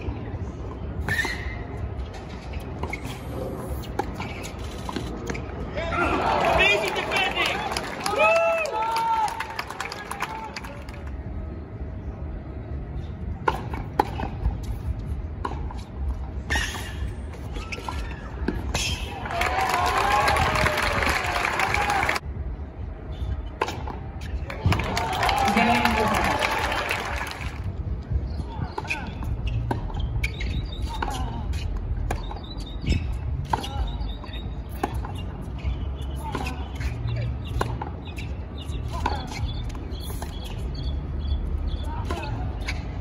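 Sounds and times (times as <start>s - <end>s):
short squeaks: 28.8s - 43.0s.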